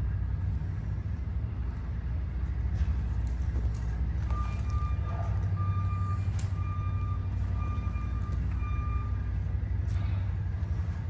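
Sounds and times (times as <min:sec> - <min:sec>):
steady low rumble: 0:00.0 - 0:11.0
vehicle backup alarm beeping: 0:04.2 - 0:10.6.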